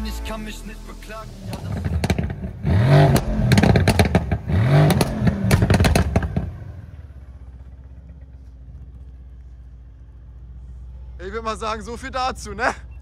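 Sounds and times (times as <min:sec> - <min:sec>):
car engine revving and crackling: 0:01.4 - 0:11.2.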